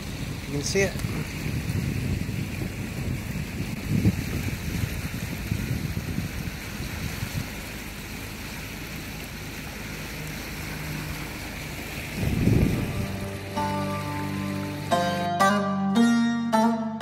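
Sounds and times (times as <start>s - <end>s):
wind buffeting microphone: 0.0s - 10.0s, 10.6s - 13.6s
water rushing along hull: 0.0s - 15.7s
boat engine running: 0.0s - 17.0s.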